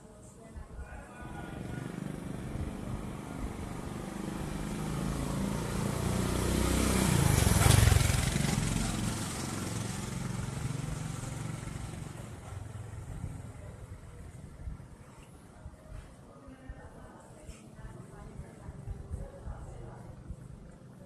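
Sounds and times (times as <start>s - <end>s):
vehicle passing by: 1.2s - 14.4s.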